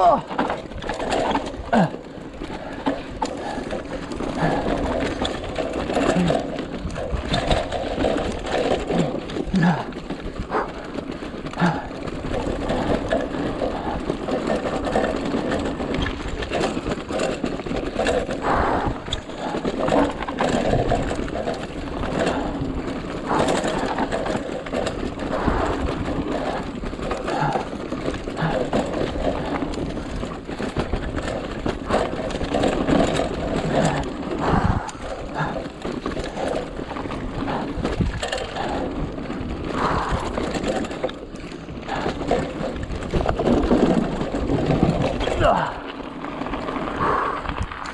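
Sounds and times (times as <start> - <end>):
bike knocking over bumps: 0.0 - 47.9
bike rattling: 0.0 - 47.9
bike tyres on dirt: 0.0 - 47.9.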